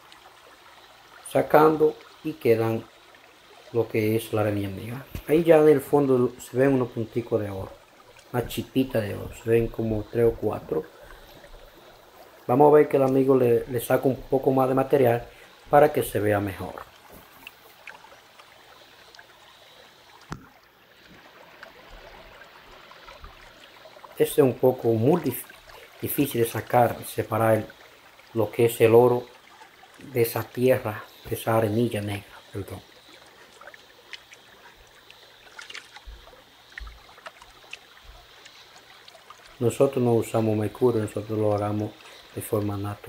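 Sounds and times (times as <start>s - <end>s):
small ticks: 0.0s - 0.3s, 8.1s - 8.4s, 16.8s - 22.2s, 32.2s - 39.8s
shallow stream trickling: 0.0s - 43.0s
small splashes and drips: 0.0s - 43.0s
water washing around a gold pan: 20.9s - 43.0s.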